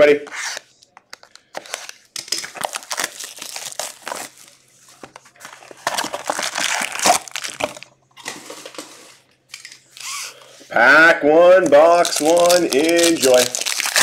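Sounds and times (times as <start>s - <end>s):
plastic wrap crinkling and tearing: 1.6s - 4.6s, 5.3s - 8.8s, 11.6s - 14.0s
foil packs rustling: 2.6s - 9.0s, 11.6s - 14.0s.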